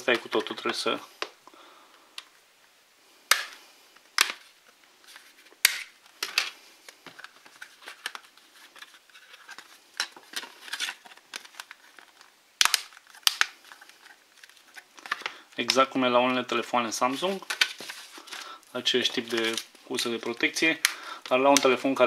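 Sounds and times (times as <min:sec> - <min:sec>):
plastic rubbing: 0:04.2 - 0:16.0
plastic phone cover clicks and snaps: 0:05.6 - 0:06.4, 0:12.6 - 0:13.5.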